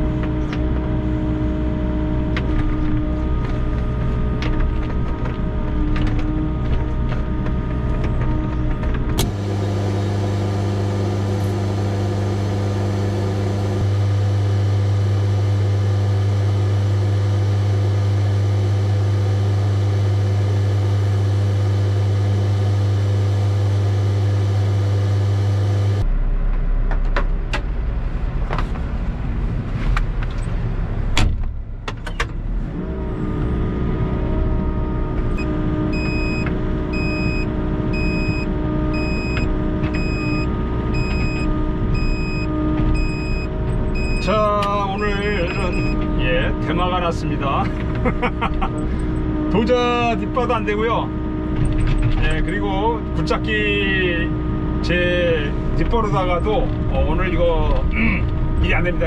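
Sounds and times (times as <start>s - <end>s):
diesel engine running: 0.0s - 59.0s
electronic warning beeper: 35.4s - 46.7s.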